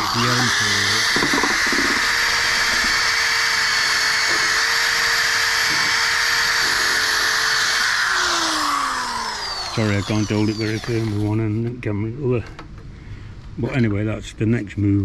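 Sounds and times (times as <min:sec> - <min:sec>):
drill wire brush scouring steel: 0:00.0 - 0:11.5.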